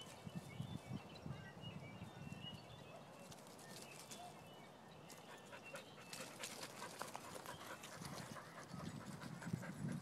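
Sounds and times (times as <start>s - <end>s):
dog panting: 5.4s - 10.0s.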